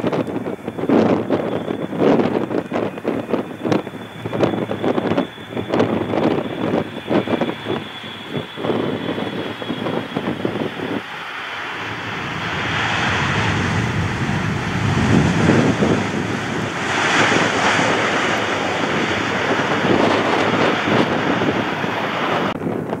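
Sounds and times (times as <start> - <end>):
jet airliner passing: 0.0 - 23.0
wind buffeting microphone: 0.0 - 23.0.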